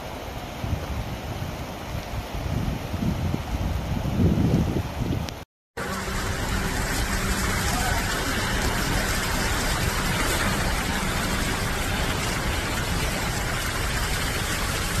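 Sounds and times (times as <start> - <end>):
rain: 0.0 - 15.0
cars driving through water: 5.8 - 15.0
floodwater rushing: 5.8 - 15.0.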